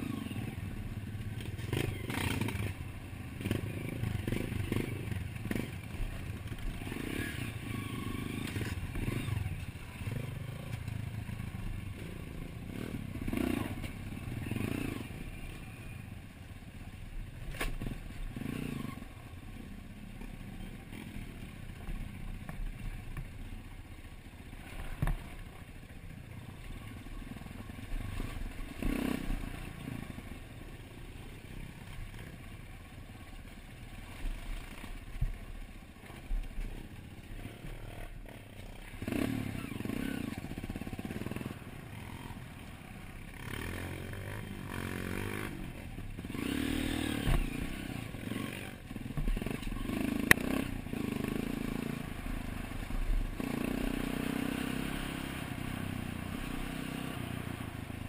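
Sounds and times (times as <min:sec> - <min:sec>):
dirt bike engine revving: 0:00.0 - 0:10.7, 0:11.3 - 0:16.0, 0:17.8 - 0:19.1, 0:27.9 - 0:30.2, 0:37.2 - 0:57.9.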